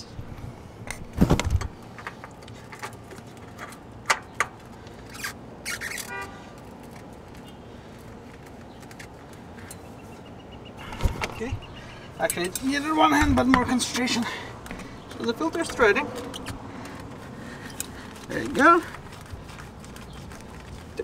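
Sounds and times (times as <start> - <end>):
hands clicking and scraping in engine: 0.3 - 21.0
camera handling thump and rustle: 0.9 - 2.2, 10.9 - 11.7.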